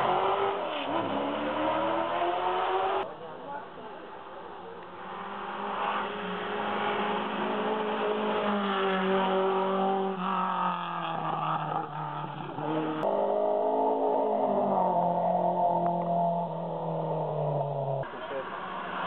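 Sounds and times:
racing car engines revving: 0:00.0 - 0:03.1, 0:04.7 - 0:19.0.

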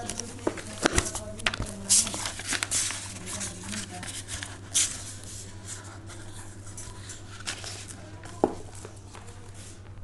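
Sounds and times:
packaging rustling: 0:00.0 - 0:05.1.

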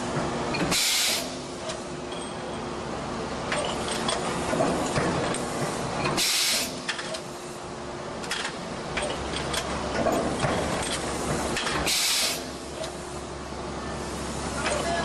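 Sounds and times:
air hisses: 0:00.7 - 0:01.4, 0:06.2 - 0:06.8, 0:11.9 - 0:12.6.

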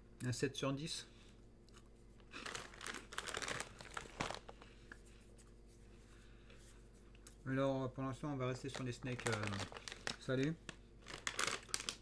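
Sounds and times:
snack bag crinkling: 0:02.3 - 0:04.7, 0:08.6 - 0:12.0.

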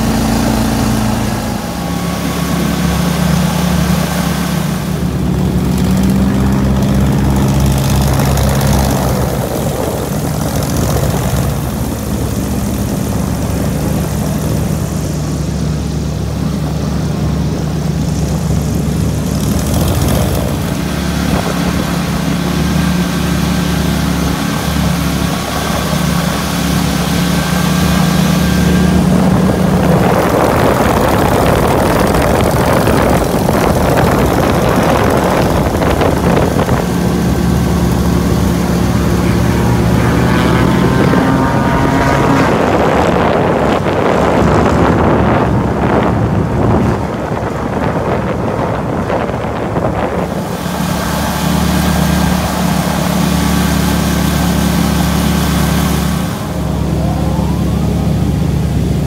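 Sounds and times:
airboat engine and propeller: 0:00.0 - 0:59.0
boat motor running: 0:00.0 - 0:59.0.

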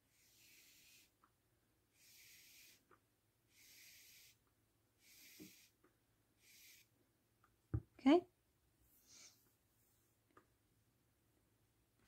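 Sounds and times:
yarn rubbing hiss: 0:00.1 - 0:01.1, 0:02.0 - 0:02.9, 0:03.5 - 0:04.4, 0:05.0 - 0:05.8, 0:06.4 - 0:06.9.

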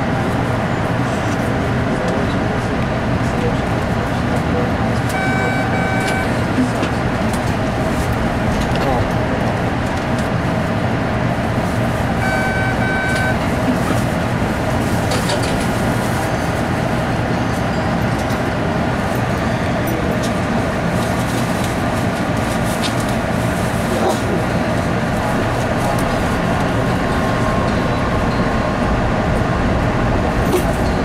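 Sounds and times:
subway car hum and rumble: 0:00.0 - 0:31.0
short electronic beeps: 0:05.1 - 0:06.4, 0:12.2 - 0:13.4.

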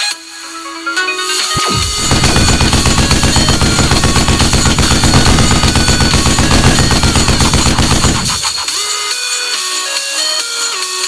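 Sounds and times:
machine-gun automatic fire: 0:01.6 - 0:09.1.

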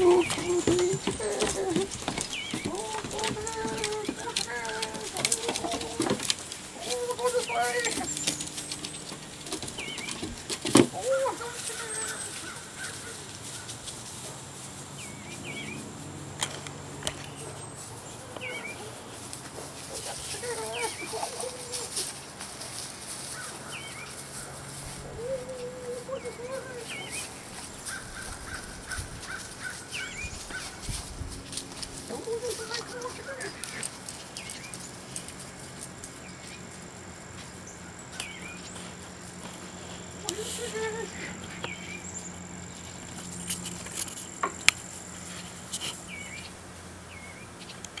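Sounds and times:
hens clucking: 0:00.0 - 0:13.4
hens chirping: 0:00.0 - 0:13.7, 0:17.1 - 0:22.2, 0:23.2 - 0:31.0
hen long wavering call: 0:25.1 - 0:27.3.

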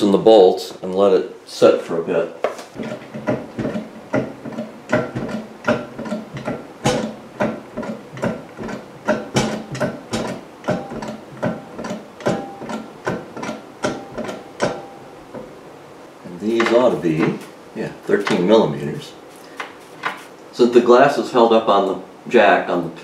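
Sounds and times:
jack clicking: 0:02.8 - 0:15.5.

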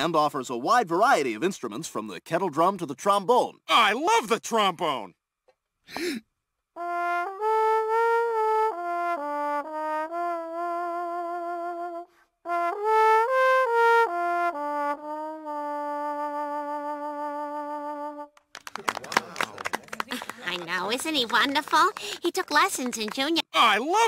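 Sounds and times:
trombone melody: 0:06.8 - 0:18.3.

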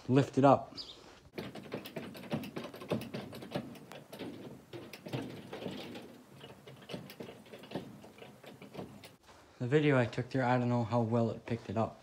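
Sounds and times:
jack ratcheting clicks and clacks: 0:01.3 - 0:09.2.

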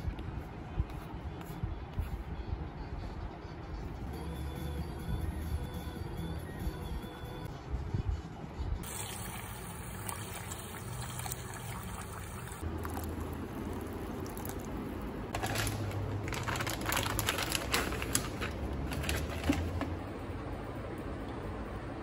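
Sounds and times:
water pouring into a bowl: 0:08.8 - 0:14.7.

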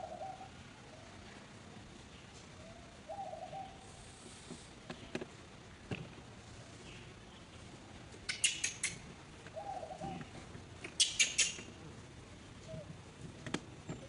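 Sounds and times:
low wavering coo-like call: 0:00.0 - 0:01.0, 0:02.7 - 0:03.8, 0:09.6 - 0:10.3
birds chirping: 0:08.3 - 0:11.7.

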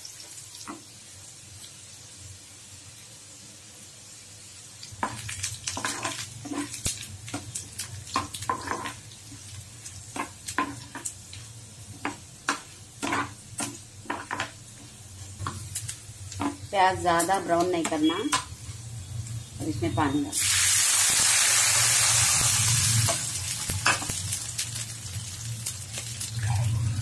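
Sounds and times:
food sizzling in a pan: 0:00.0 - 0:27.0
spoon scraping a pan: 0:05.0 - 0:07.0, 0:08.2 - 0:09.0, 0:10.1 - 0:11.1, 0:12.0 - 0:15.7.

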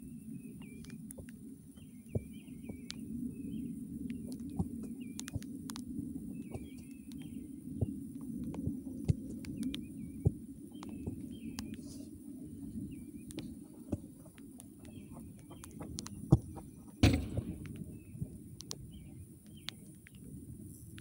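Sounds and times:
birds chirping: 0:00.0 - 0:20.3
low steady rumble: 0:10.0 - 0:21.0
ball kicked with thud: 0:17.0 - 0:17.9.

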